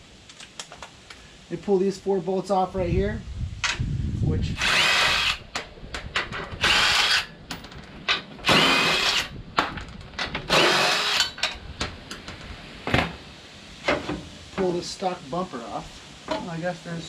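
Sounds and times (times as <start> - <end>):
impact driver whining: 4.6 - 5.4, 6.6 - 7.3, 8.4 - 9.3, 10.5 - 11.4.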